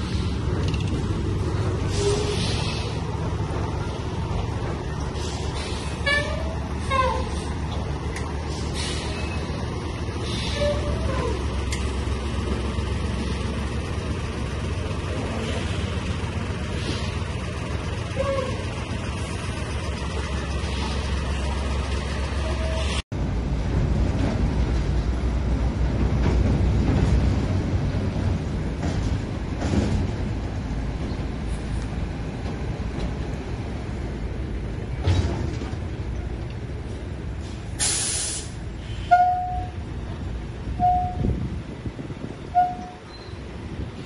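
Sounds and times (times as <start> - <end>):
truck engine idling: 0.0 - 23.5.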